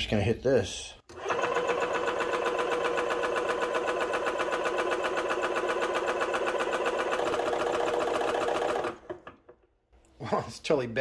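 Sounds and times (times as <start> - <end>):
air compressor chattering: 1.1 - 9.4.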